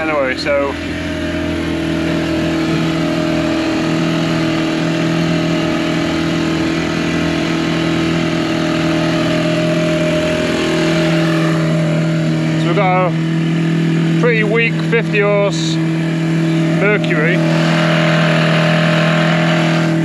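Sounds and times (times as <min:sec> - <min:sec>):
man talking: 0:00.0 - 0:00.8, 0:12.6 - 0:13.2, 0:14.1 - 0:15.8, 0:16.6 - 0:17.4
outboard motor running: 0:00.0 - 0:20.0.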